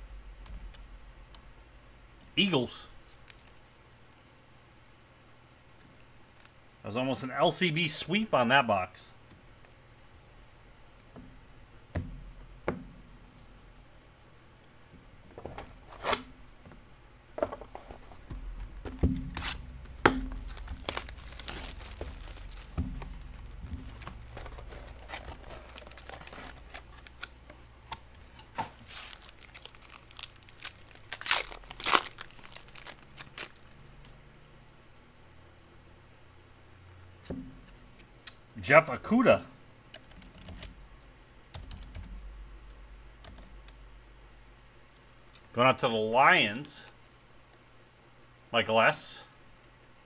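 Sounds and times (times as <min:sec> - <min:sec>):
wrappers tearing and crinkling: 0:19.2 - 0:34.0.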